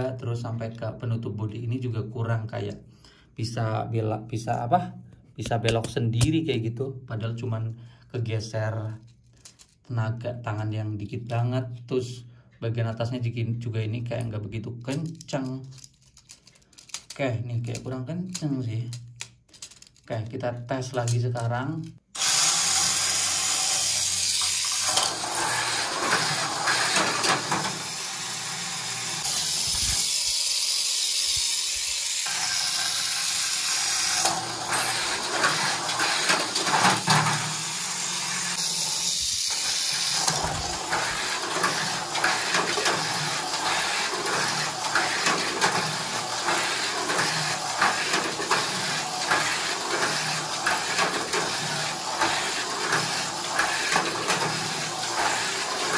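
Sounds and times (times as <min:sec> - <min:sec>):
toy car clattering on track: 0:14.9 - 0:20.1, 0:23.5 - 0:55.9
small electric motor whining: 0:22.2 - 0:55.9.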